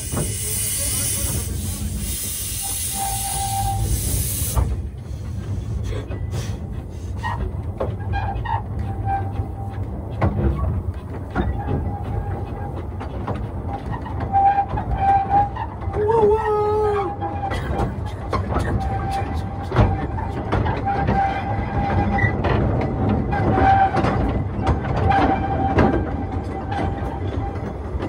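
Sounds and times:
wheels squealing: 0.0 - 4.7, 5.9 - 28.0
steam hissing from locomotive: 0.0 - 7.4
carriage rumbling over rails: 3.8 - 28.0.

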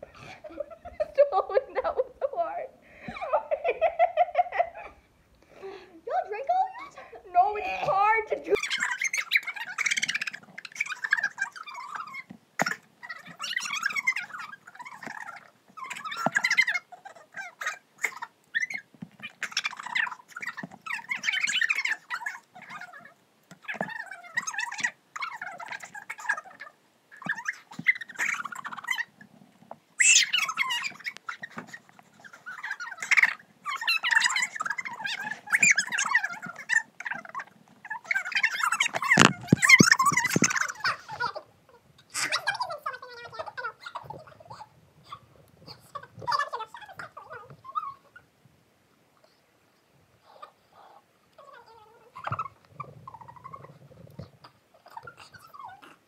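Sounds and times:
girls giggling: 0.0 - 9.0
girls giggling and squealing: 0.0 - 12.2, 37.9 - 44.7
squeaky wordless vocal noises: 5.6 - 29.2, 30.0 - 48.3, 50.2 - 56.0.

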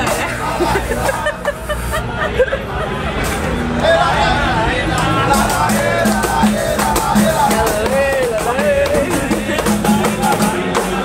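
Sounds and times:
person singing: 5.0 - 11.0
drum beat: 5.3 - 11.0.

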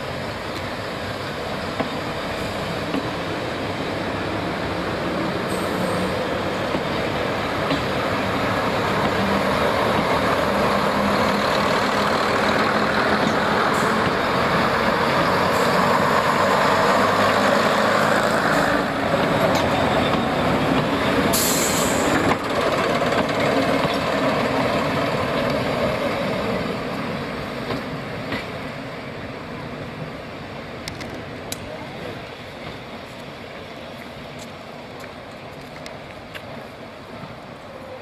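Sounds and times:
diesel train engines passing: 0.0 - 38.0
train wheels on rails: 0.0 - 38.0
hiss of air: 5.4 - 6.2, 21.3 - 22.2.

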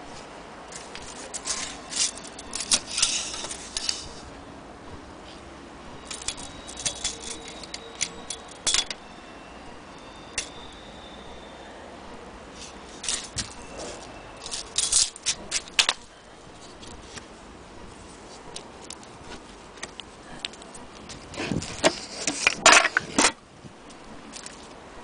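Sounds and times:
small piece clicking and rattling: 0.7 - 4.0, 6.1 - 9.0, 14.4 - 16.1, 24.3 - 24.8.

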